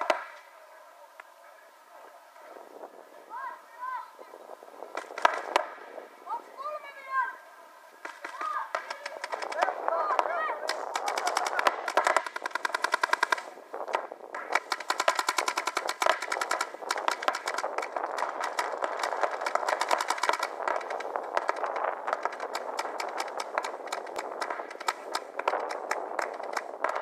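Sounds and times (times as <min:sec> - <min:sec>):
paintball markers firing: 0:05.0 - 0:05.7, 0:08.0 - 0:27.0.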